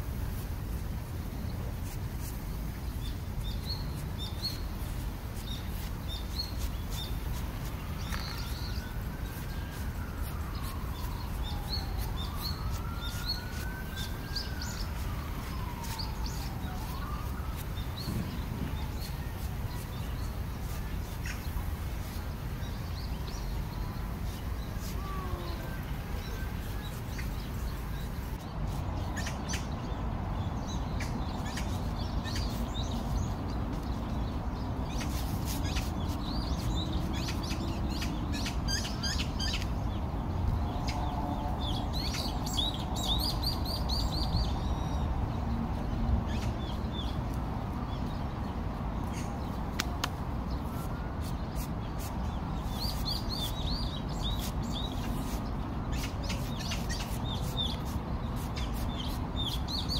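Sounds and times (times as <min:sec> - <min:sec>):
small birds chirping: 0:01.2 - 0:59.9
distant siren: 0:07.5 - 0:20.3, 0:23.4 - 0:28.0.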